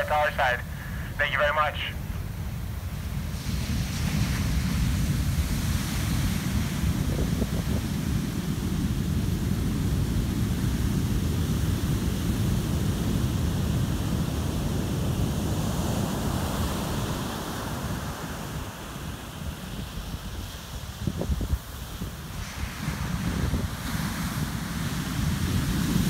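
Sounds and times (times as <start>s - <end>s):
surf crashing on sand: 0.0s - 26.0s
wind buffeting microphone: 2.2s - 15.6s, 19.8s - 26.0s.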